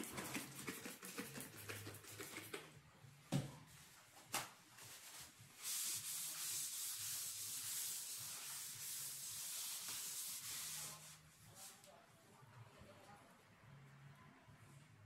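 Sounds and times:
paper towel scrubbing: 4.8 - 11.8.

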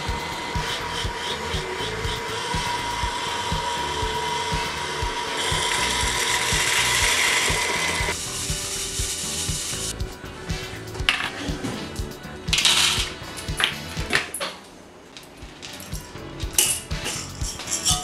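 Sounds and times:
coffee beans rattling in metal colander: 15.6 - 18.0.

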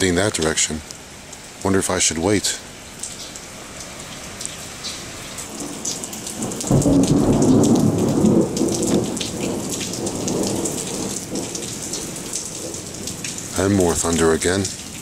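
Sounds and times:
rain pattering: 0.0 - 15.0
thunder rumble: 5.5 - 13.2.

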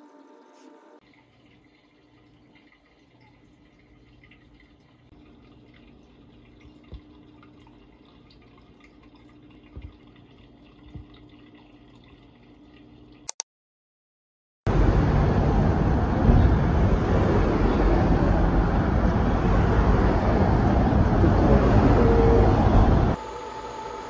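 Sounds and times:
sponge filter bubbling: 1.0 - 13.2
loud street noise: 14.7 - 23.2.

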